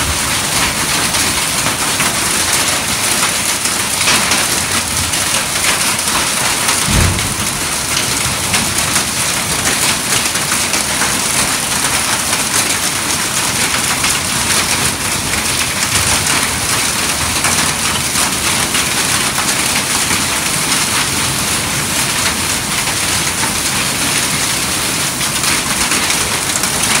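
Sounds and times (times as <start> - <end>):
heavy rain pouring: 0.0 - 27.0
low thump: 6.9 - 7.6.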